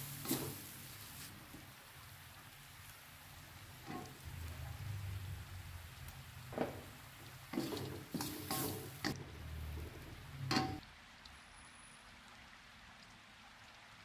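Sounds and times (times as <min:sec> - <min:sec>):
wooden spatula scraping a wok: 0:00.0 - 0:01.8, 0:03.8 - 0:04.2, 0:06.5 - 0:10.8.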